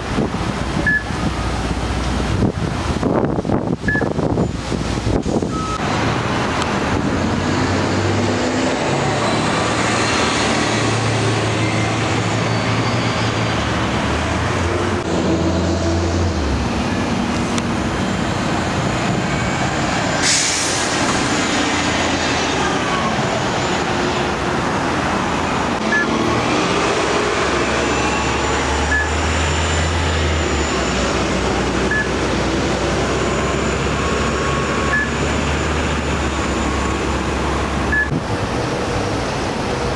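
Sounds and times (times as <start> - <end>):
bus engines humming: 0.0 - 39.9
sharp hiss of air: 20.2 - 21.6.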